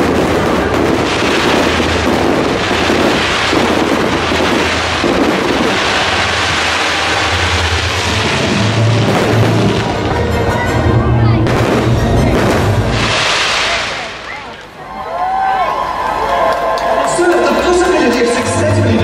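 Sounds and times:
fireworks crackling and banging: 0.0 - 14.8
low musical soundtrack: 4.2 - 13.3.

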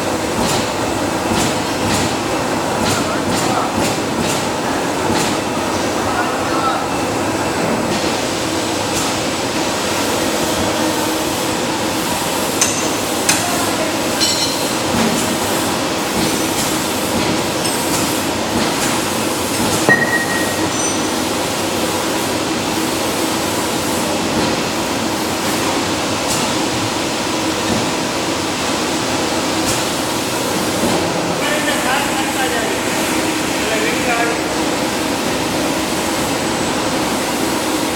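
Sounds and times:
power press machine hum: 11.9 - 23.5.

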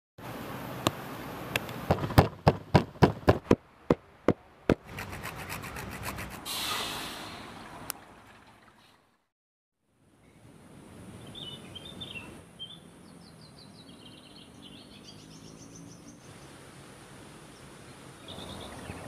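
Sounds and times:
wooden pestle pounding in mortar: 1.9 - 6.3.

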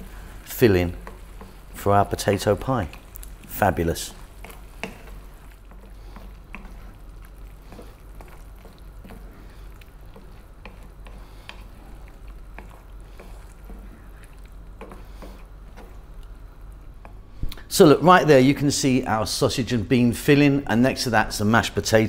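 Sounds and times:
wooden spoon stirring thick sauce: 0.0 - 17.4
sauce bubbling: 0.0 - 18.4.

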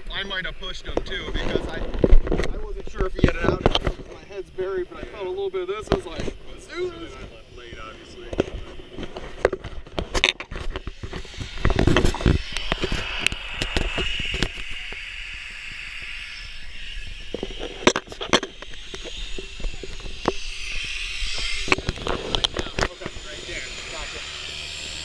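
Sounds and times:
wind buffeting microphone: 0.4 - 24.1.

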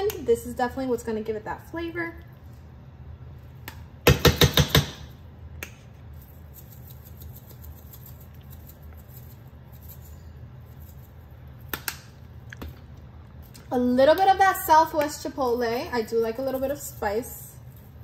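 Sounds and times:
spice shaker rattling: 6.1 - 11.8
light ticking of sprinkled seasoning: 6.1 - 12.2, 14.9 - 18.0.

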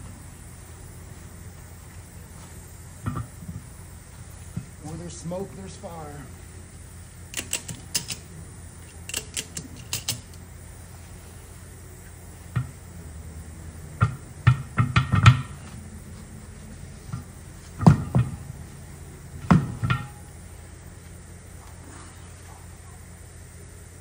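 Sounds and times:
low steady hum: 0.0 - 24.0
tire thumps and knocks: 3.0 - 3.7, 12.5 - 12.8, 14.0 - 15.8, 17.0 - 18.6, 19.3 - 20.3
ratchet strap clicking: 7.3 - 8.2, 9.1 - 10.4.

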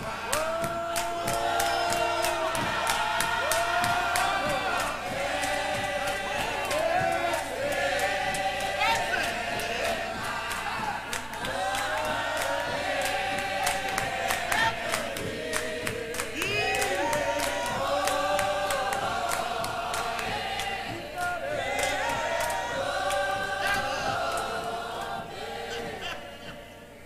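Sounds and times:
hands clapping along: 0.0 - 26.2
choir singing a hymn: 0.0 - 27.0.

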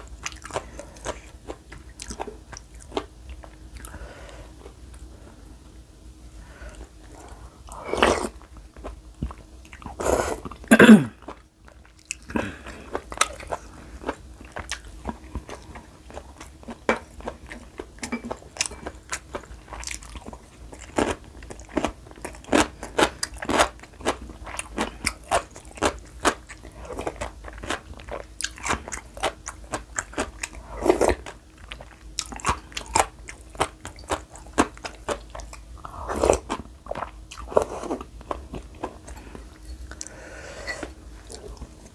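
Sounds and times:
crisp crunching and chewing: 8.3 - 40.1.

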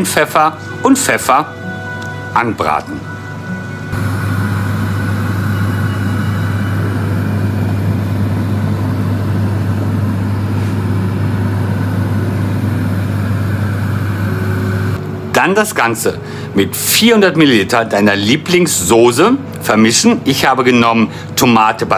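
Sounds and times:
steady low hum: 3.7 - 17.2.

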